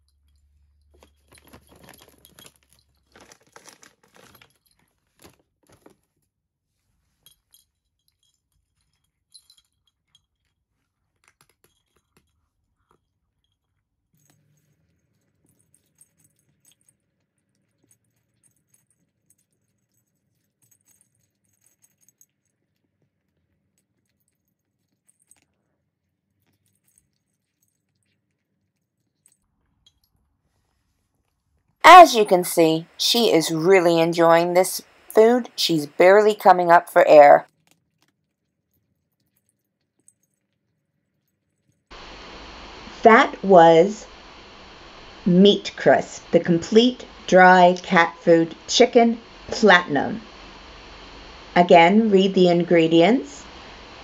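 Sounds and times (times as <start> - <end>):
cat crunching dry kibble: 1.3 - 6.0
plastic pouch crinkling: 3.0 - 4.5.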